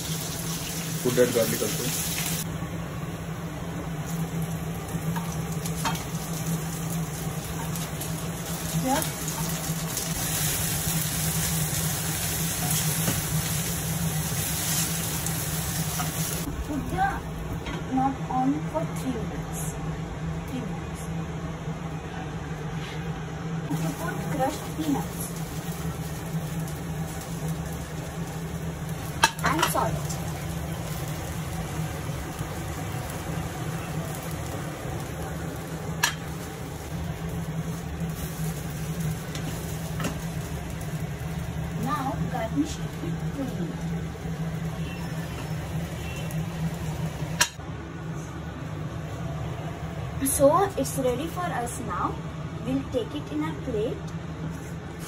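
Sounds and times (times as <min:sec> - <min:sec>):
greens sizzling in pan: 0:00.0 - 0:02.5, 0:03.8 - 0:17.3, 0:23.7 - 0:47.6
low hum: 0:15.1 - 0:51.2.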